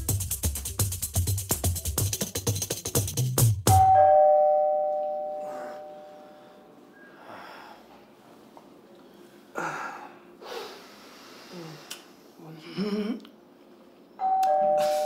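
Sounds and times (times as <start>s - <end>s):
two-note doorbell chime: 3.7s - 6.6s, 14.2s - 15.0s.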